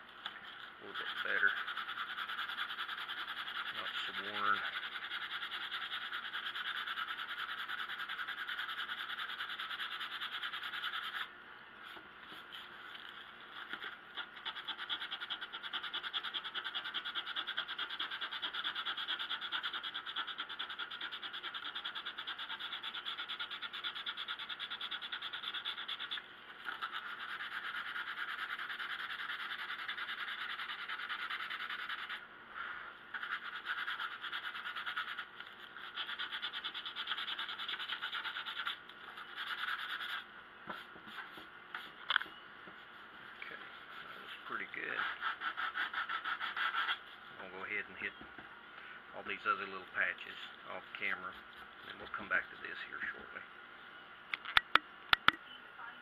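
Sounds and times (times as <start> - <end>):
sandpaper scratching on wood: 0.8 - 11.3, 13.6 - 32.2, 33.1 - 40.2, 44.0 - 47.0.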